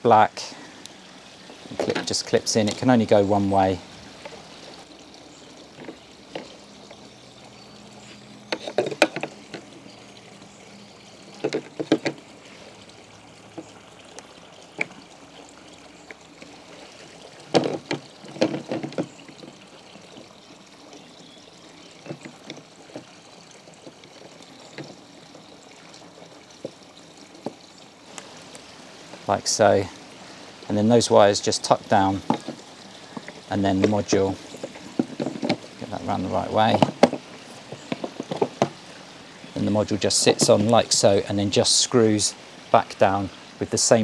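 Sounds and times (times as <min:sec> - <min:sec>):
steady low hiss: 0:00.0 - 0:44.0
cables rustling: 0:22.0 - 0:41.2.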